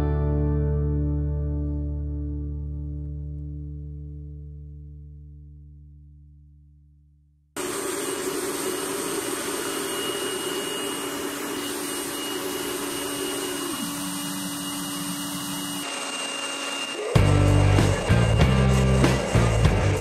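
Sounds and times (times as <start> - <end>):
music: 0.0 - 7.3, 17.1 - 20.0
low hum: 17.2 - 20.0.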